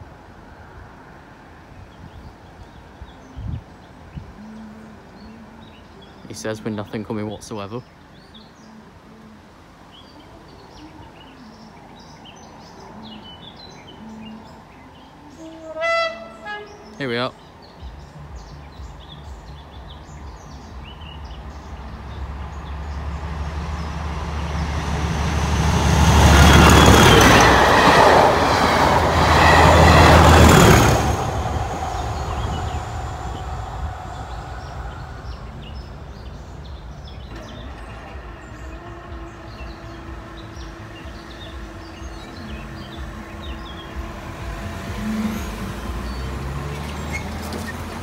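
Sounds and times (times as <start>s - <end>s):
diesel locomotive engine drone: 20.7s - 48.0s.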